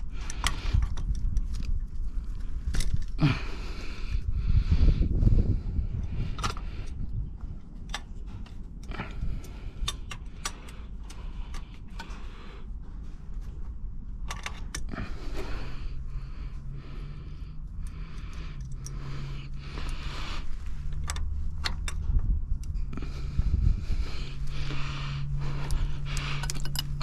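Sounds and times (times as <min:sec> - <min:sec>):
low steady hum: 0:00.0 - 0:27.0
metal hand tools clinking: 0:26.2 - 0:27.0.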